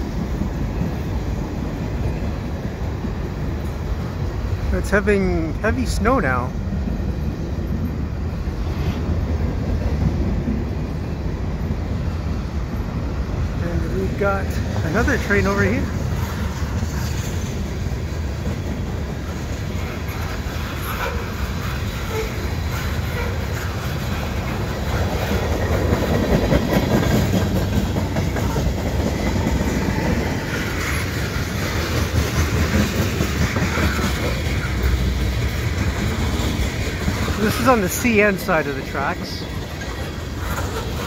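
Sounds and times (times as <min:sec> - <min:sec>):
freight train rolling past: 0:00.0 - 0:41.0.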